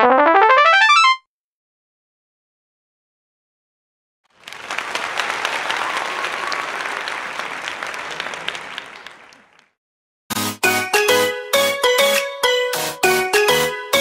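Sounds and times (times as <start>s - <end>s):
crowd clapping: 4.3s - 9.8s.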